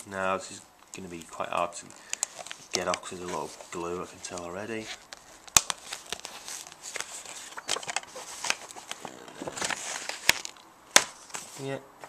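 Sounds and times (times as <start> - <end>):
paper peeling crackling rustle: 0.9 - 10.6.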